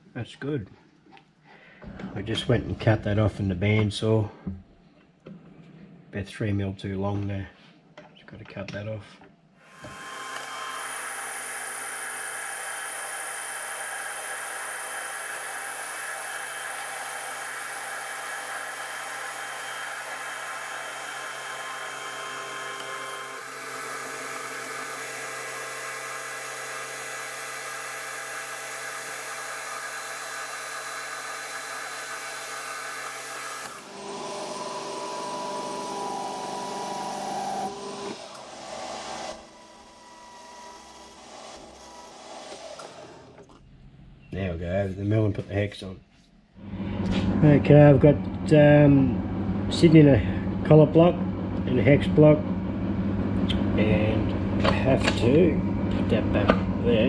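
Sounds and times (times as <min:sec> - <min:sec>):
metal lathe whine: 0:09.7 - 0:43.5.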